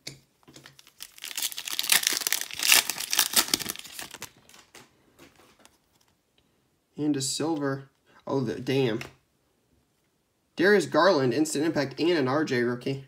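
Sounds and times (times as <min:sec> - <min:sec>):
wrapper tearing and crinkling: 0:00.6 - 0:04.8.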